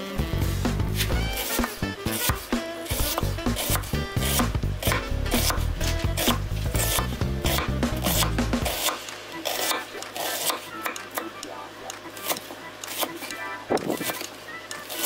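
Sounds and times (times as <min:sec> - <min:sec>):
knife chopping on wooden board: 0:00.9 - 0:11.2.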